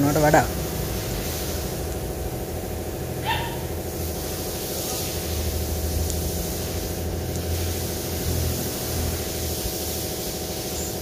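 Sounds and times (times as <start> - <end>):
low engine-like rumble: 0.0 - 11.0
hiss: 0.8 - 2.0, 3.9 - 11.0.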